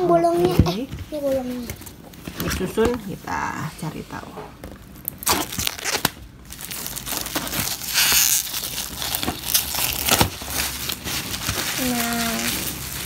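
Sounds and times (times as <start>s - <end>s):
plastic wrap crinkling: 4.6s - 13.0s.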